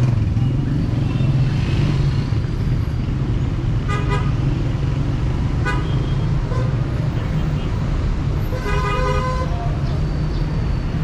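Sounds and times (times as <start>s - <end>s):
city street traffic rumble: 0.0s - 11.0s
vehicle horn toots: 8.5s - 9.7s.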